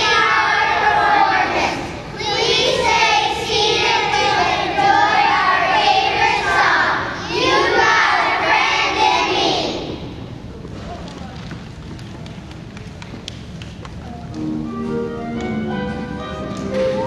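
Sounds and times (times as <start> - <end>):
children singing in unison: 0.0 - 10.1.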